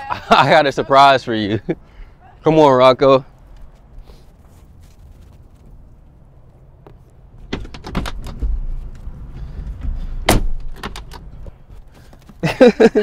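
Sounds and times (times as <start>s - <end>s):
car doors clicking and knocking: 7.4s - 8.8s, 9.6s - 11.6s.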